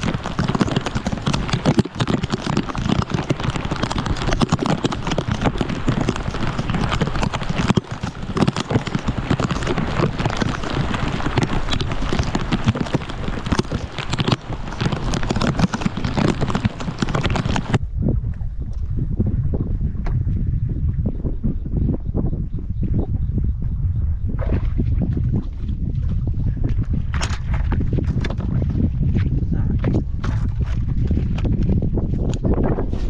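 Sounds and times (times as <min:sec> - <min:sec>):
heavy rain crackling: 0:00.0 - 0:17.8
wind buffeting microphone: 0:00.0 - 0:33.0.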